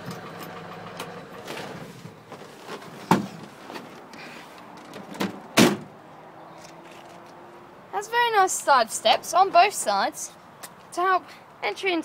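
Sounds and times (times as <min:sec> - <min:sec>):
diesel engine switching off: 0:00.0 - 0:01.9
door slamming: 0:03.1 - 0:03.4, 0:05.0 - 0:05.9.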